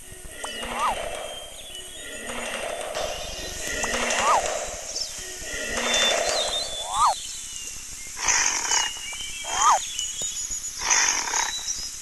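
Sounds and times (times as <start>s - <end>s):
animal calls sweeping in pitch: 0.6s - 1.0s, 4.1s - 4.5s, 6.8s - 7.2s, 9.5s - 9.8s.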